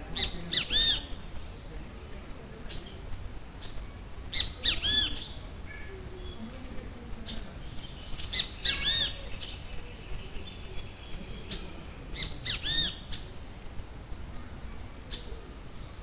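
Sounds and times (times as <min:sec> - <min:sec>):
bird chirps: 0:03.6 - 0:06.5, 0:07.3 - 0:13.6.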